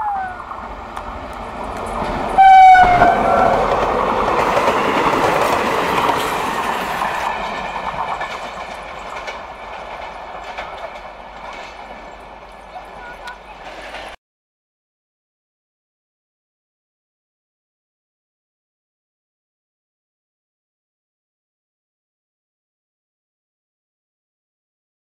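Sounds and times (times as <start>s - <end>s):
train wheels rushing on rail: 0.1s - 14.2s
train horn: 2.4s - 3.8s
wheels clicking over rail joints: 3.0s - 14.2s.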